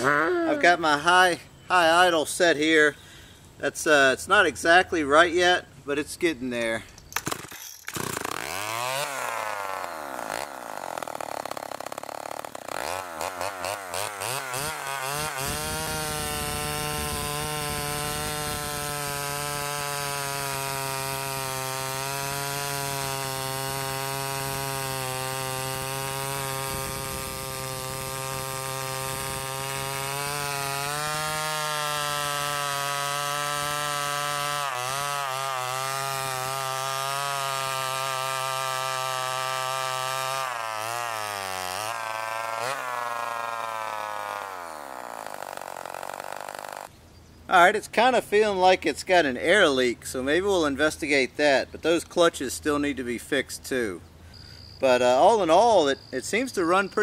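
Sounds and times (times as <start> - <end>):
chainsaw revving and cutting log: 7.2 - 46.9.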